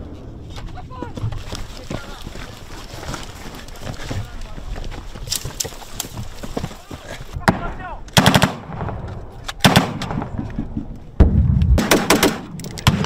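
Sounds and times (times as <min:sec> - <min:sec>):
automatic gunfire bursts: 0:08.2 - 0:08.6, 0:11.8 - 0:13.0.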